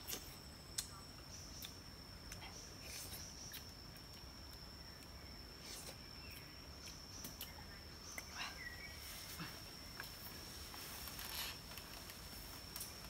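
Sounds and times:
high insect drone: 0.0s - 13.0s
bird chirp: 4.8s - 10.1s.

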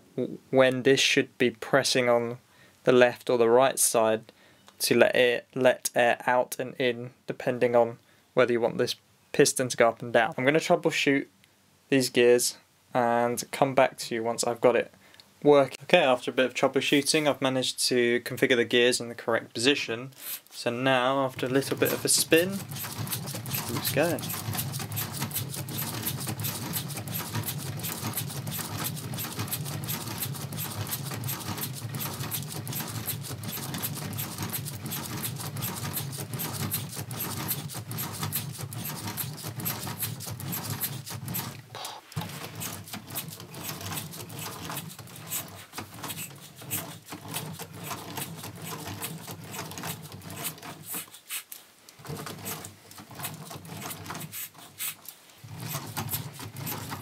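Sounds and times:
plastic pneumatic engine clatter: 21.4s - 51.4s, 52.0s - 57.0s.

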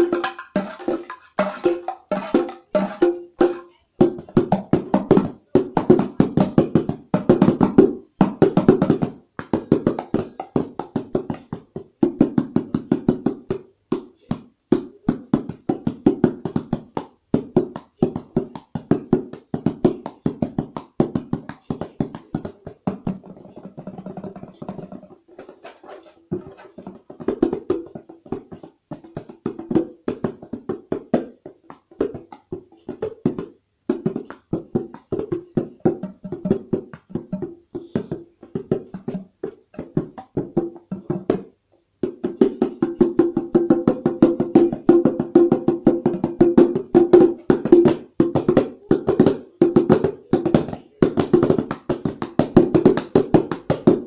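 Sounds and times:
hand drum strokes: 0.0s - 9.1s.

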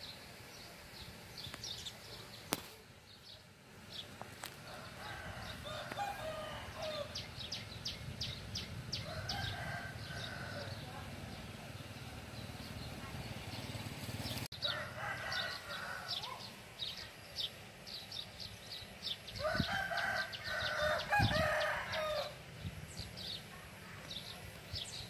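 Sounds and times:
small birds chirping: 0.0s - 25.0s
rooster crowing: 4.6s - 7.2s, 9.0s - 10.8s, 14.6s - 16.4s, 19.4s - 22.4s.

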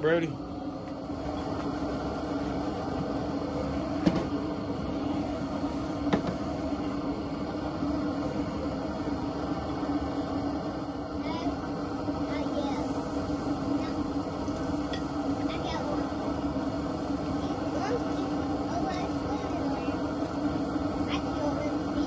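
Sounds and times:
propane fryer hum: 0.0s - 22.0s.

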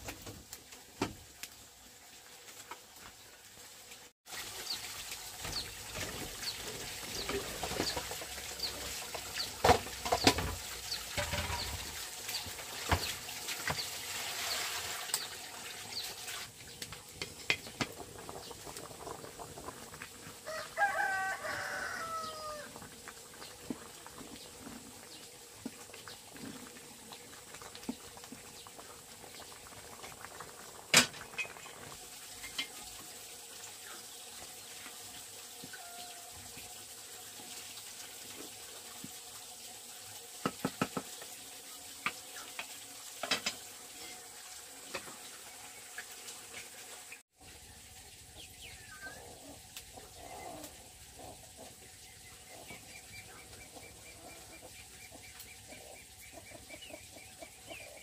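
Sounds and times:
rooster crowing: 20.4s - 22.7s, 35.7s - 36.4s.

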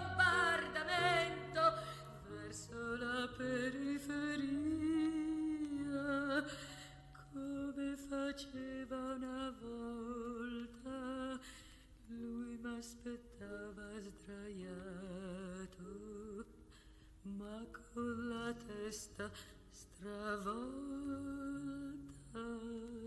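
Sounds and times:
woman singing with vibrato: 0.0s - 11.5s, 17.3s - 23.0s.

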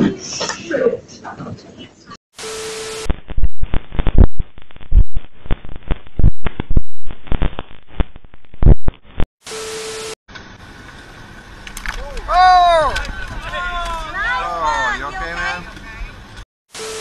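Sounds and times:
tv static hiss: 2.4s - 10.1s.

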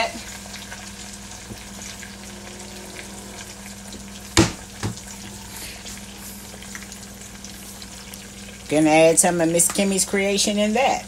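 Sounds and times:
steady low hum: 0.0s - 9.6s
butter and cheese sizzling: 0.0s - 11.0s
sharp knocks: 4.4s - 5.0s.

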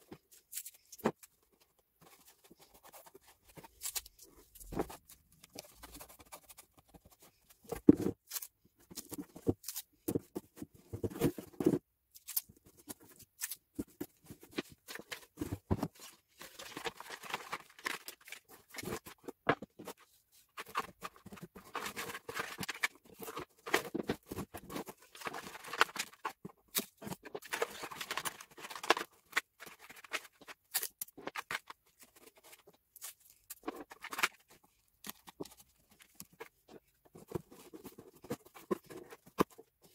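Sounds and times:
cardboard taps and scrapes: 8.9s - 11.8s.

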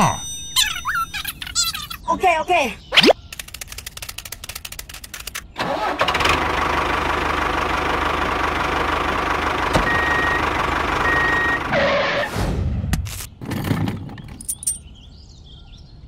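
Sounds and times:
engine cranking and running: 3.4s - 11.7s.

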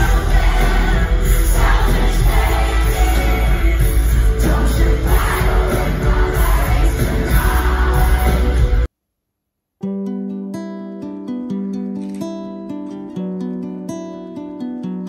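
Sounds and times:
person singing over band: 0.0s - 8.9s.

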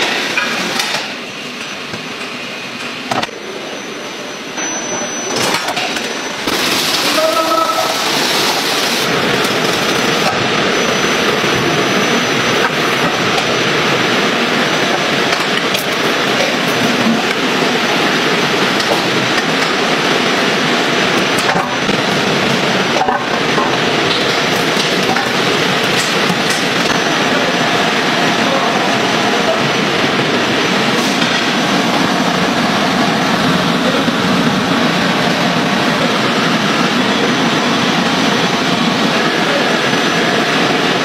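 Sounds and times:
conveyor machinery clattering: 0.0s - 41.0s.

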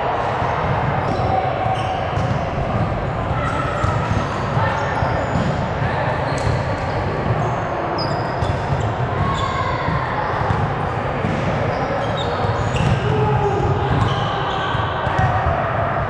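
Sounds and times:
sneaker squeaks on court: 3.5s - 9.6s, 11.2s - 15.3s.

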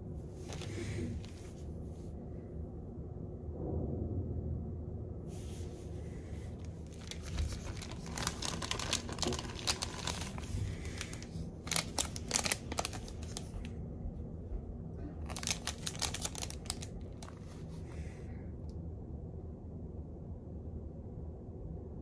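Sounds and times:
steady low hum: 0.0s - 22.0s
plastic wrapper crinkling: 0.4s - 1.5s, 6.6s - 13.7s, 15.2s - 17.8s.

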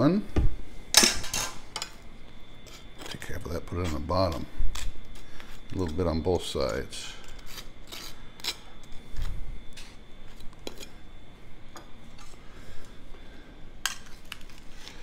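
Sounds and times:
knife scraping and tapping: 7.2s - 11.0s.

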